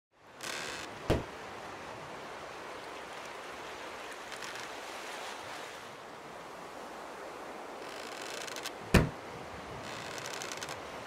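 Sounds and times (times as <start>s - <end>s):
wind: 0.1s - 11.0s
ocean surf: 0.2s - 11.0s
loud thump: 1.1s - 1.3s, 8.9s - 9.2s.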